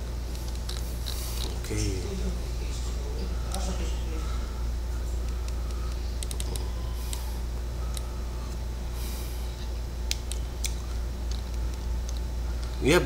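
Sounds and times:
steady low hum: 0.0s - 13.0s
computer keys clicking: 5.2s - 7.3s, 10.0s - 12.8s.

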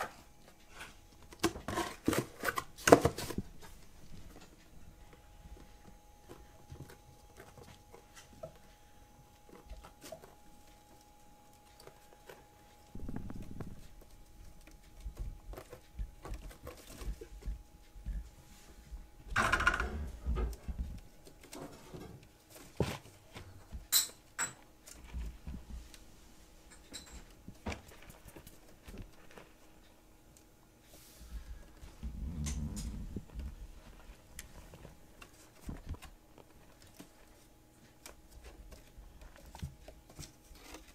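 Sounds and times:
small paws scrabbling on cardboard: 30.9s - 40.9s.

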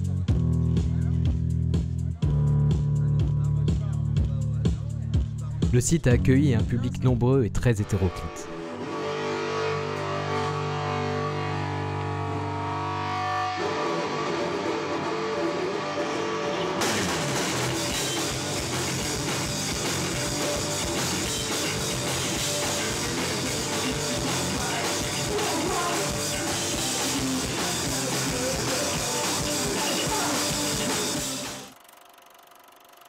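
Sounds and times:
live rock band playing: 8.6s - 31.7s
drum kit with cymbal crashes: 16.7s - 31.7s.

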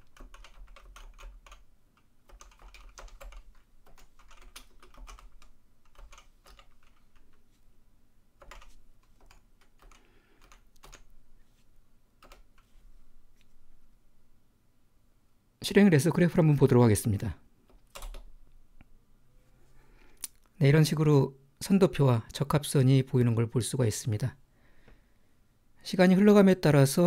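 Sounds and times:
typing on keyboard: 0.0s - 7.4s, 8.4s - 11.1s, 12.2s - 12.7s, 17.7s - 18.3s.

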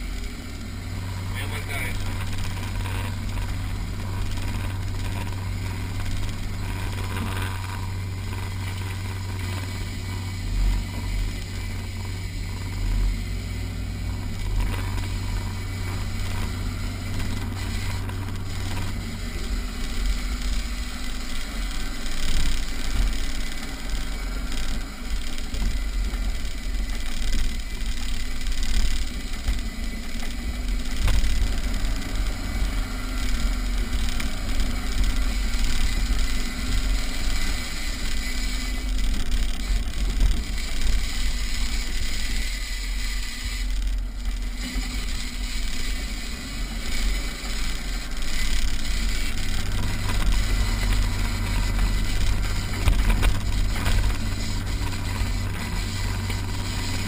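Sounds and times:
vehicle thumps and rattles over bumps: 0.0s - 38.2s, 46.9s - 57.0s
vehicle engine under load: 0.0s - 57.0s.

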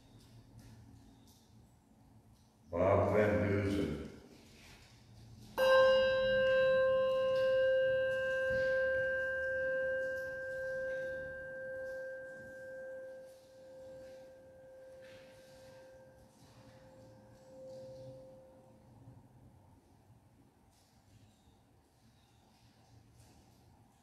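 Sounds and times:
handbell ringing: 5.6s - 18.4s.

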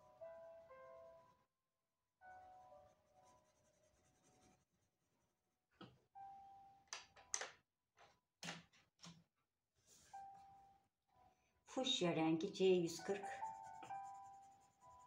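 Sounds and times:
pencil scratching on paper: 2.3s - 5.2s, 12.9s - 15.0s
faint background music: 9.9s - 15.0s.

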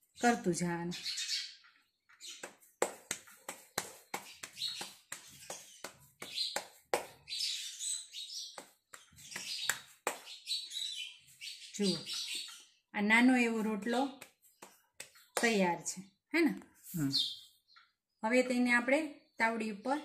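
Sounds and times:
hands slapping dough: 2.4s - 7.3s, 8.5s - 10.4s, 14.0s - 15.6s.

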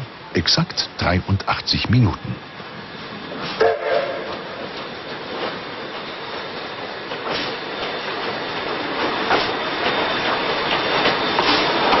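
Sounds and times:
train wheels clicking over rail joints: 3.0s - 12.0s.

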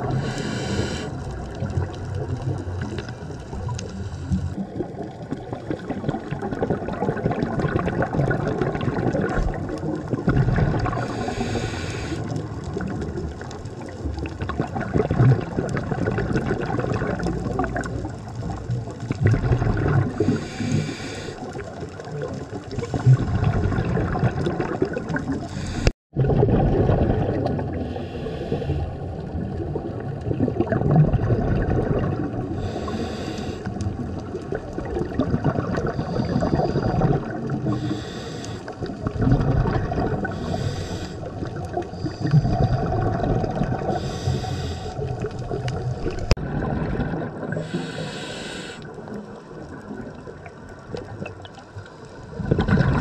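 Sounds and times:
exhaled bubbles rumbling: 0.0s - 53.0s
regulator inhale hiss: 0.1s - 1.3s, 3.8s - 4.8s, 11.0s - 12.4s, 20.2s - 21.6s, 25.4s - 25.9s, 27.8s - 29.0s, 32.6s - 33.8s, 37.7s - 38.9s, 40.3s - 41.3s, 44.0s - 45.3s, 47.6s - 49.1s.

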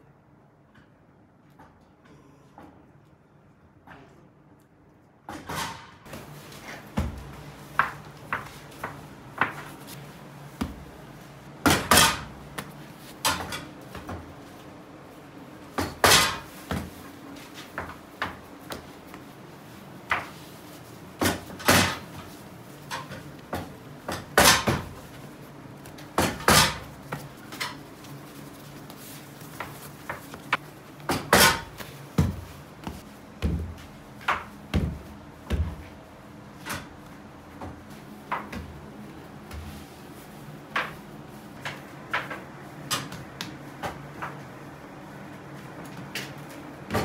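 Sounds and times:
dough thudding on table: 10.6s - 11.0s, 29.5s - 36.0s.

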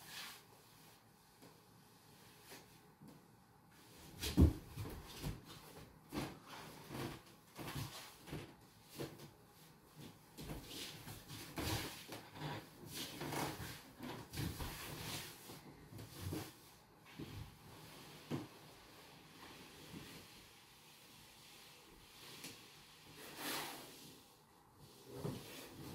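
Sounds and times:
bare feet on hardwood floor: 3.9s - 20.4s.

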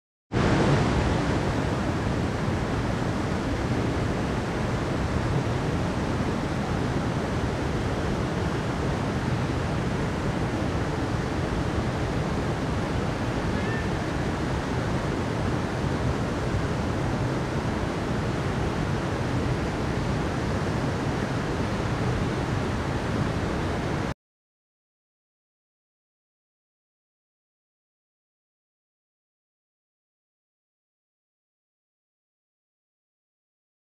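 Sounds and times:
stream rushing over rocks: 0.4s - 24.1s.

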